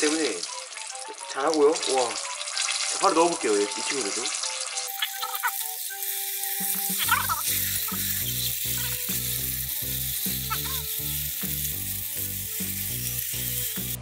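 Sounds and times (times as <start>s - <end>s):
deep-frying sizzle in hot oil: 0.0s - 14.0s
background music with steady beat: 5.6s - 14.0s.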